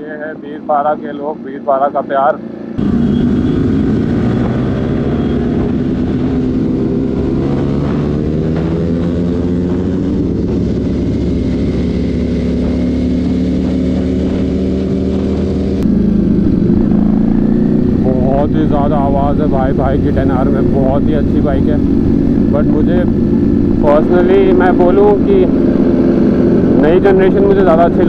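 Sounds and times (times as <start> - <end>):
motorcycle engine cruising: 2.3 - 28.0
motorcycle engine running: 2.7 - 28.0
wind rush: 2.8 - 18.0.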